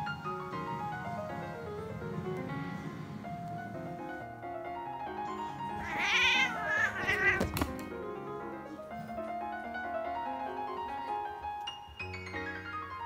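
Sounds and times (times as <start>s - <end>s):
gentle piano music: 0.0s - 13.0s
cat crying out: 5.8s - 7.6s.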